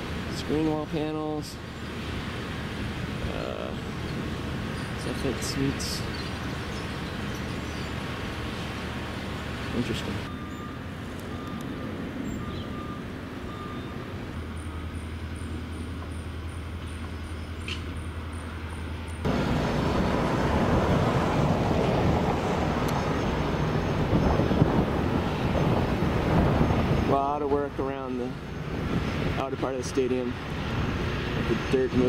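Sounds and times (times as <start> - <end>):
construction engine drone: 0.0 - 32.0
faint beep: 10.3 - 11.6, 12.4 - 14.1
wind on microphone: 19.3 - 32.0.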